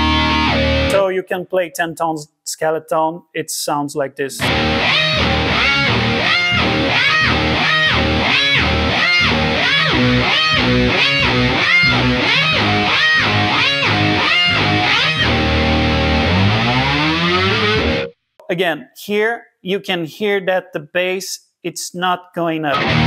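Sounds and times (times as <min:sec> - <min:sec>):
electric bass riff with octave effect: 0:00.0 - 0:01.0, 0:04.4 - 0:18.1, 0:22.8 - 0:23.0.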